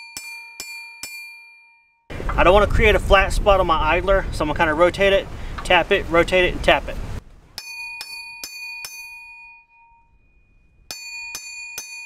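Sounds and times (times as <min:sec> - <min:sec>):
hammer ringing on steel: 0:00.0 - 0:02.1, 0:07.6 - 0:12.0.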